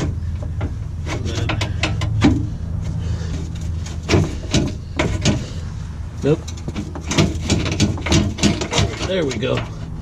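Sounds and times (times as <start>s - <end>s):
steady low hum: 0.0s - 10.0s
plastic tray knocking and scraping: 3.9s - 5.6s, 6.6s - 9.5s.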